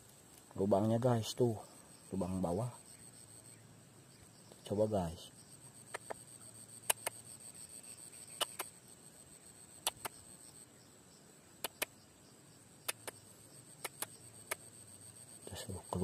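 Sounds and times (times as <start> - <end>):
sharp clicks in pairs: 6.8 - 7.2, 8.4 - 8.7, 9.8 - 10.2, 11.6 - 12.0, 12.8 - 13.2, 13.8 - 14.7
faint high-pitched tone: 14.7 - 16.0.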